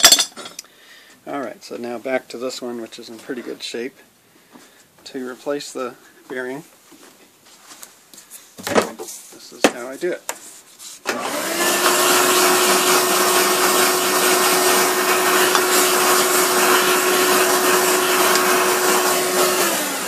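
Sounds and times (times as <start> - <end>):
power tool motor hum: 11.1 - 20.0.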